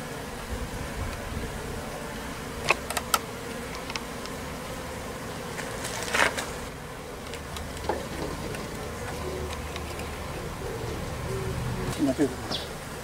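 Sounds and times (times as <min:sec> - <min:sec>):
honeybees buzzing: 0:00.0 - 0:13.0
wooden hive box clicks: 0:02.6 - 0:04.4, 0:07.2 - 0:10.3.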